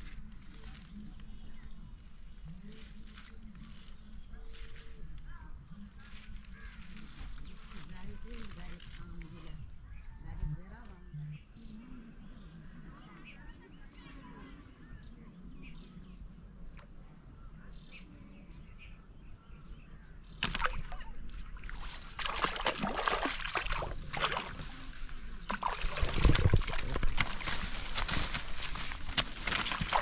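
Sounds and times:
faint insect drone: 0.0s - 30.0s
fish splashing in water: 20.4s - 28.0s, 29.4s - 30.0s.

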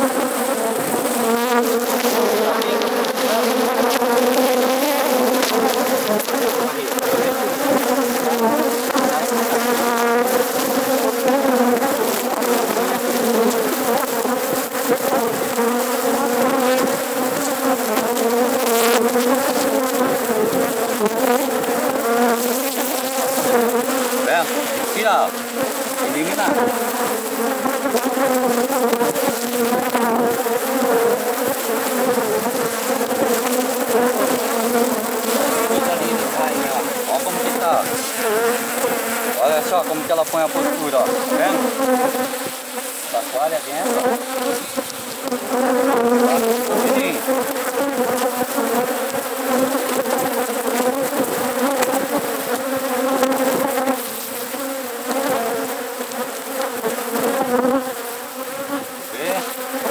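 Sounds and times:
bees buzzing: 0.0s - 59.9s.

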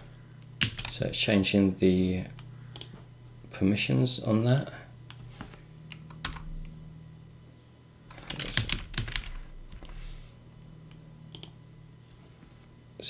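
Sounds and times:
computer keyboard keystrokes: 0.6s - 1.0s, 2.4s - 2.9s, 8.1s - 9.9s, 11.3s - 11.6s.

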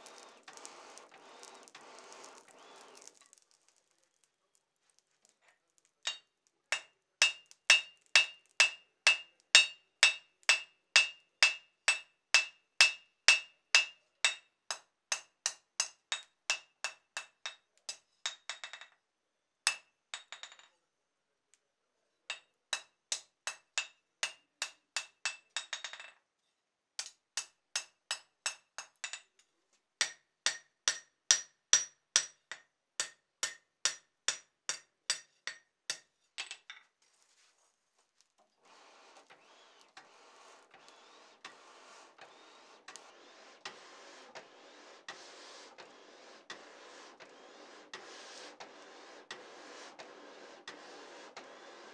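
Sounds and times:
hammer striking anvil: 6.1s - 17.6s, 30.0s - 36.1s.

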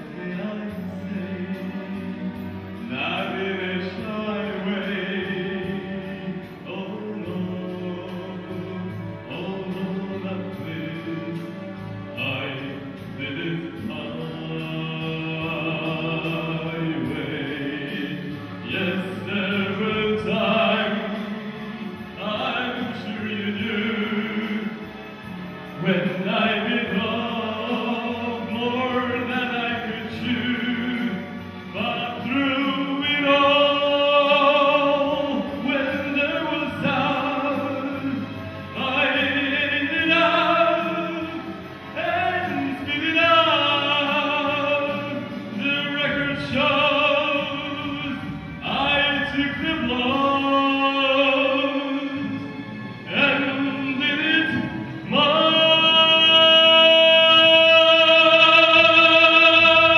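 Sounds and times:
man singing operatically: 0.0s - 59.9s
musical accompaniment: 0.0s - 59.9s.

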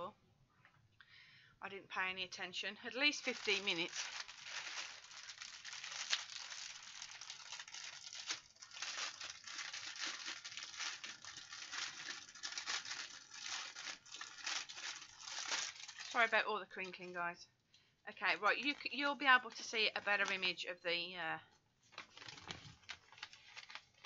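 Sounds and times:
plastic wrapping crinkling: 2.9s - 17.2s, 18.2s - 20.5s, 21.8s - 24.0s.

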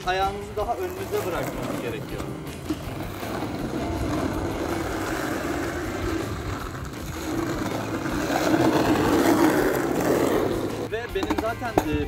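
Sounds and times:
skateboard wheels rolling on asphalt: 0.0s - 12.0s.

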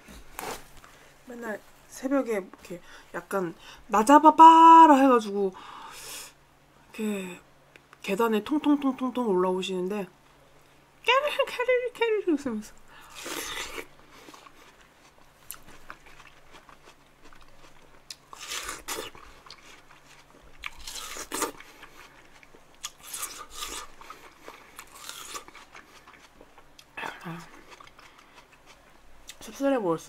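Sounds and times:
chewing: 13.0s - 29.4s.

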